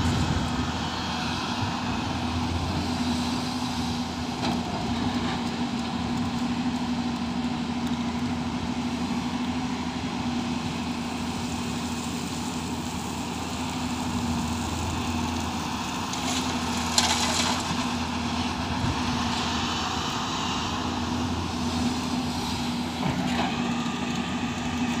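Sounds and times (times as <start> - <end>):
excavator diesel engine running: 0.0 - 25.0
soil dumped into steel truck bed: 16.1 - 18.2.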